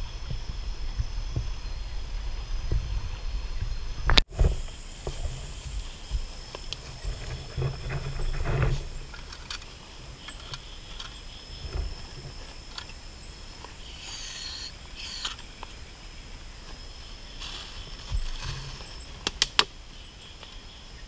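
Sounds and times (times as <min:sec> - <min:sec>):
night insects chorus: 0:00.0 - 0:21.0
camping pots clicking and thumping: 0:04.1 - 0:13.8, 0:17.4 - 0:19.7.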